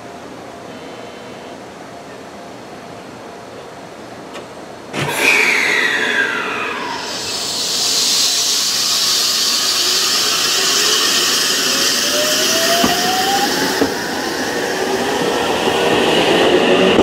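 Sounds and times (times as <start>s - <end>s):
electric train motors whining: 4.9s - 17.0s
steady hiss: 6.8s - 15.9s.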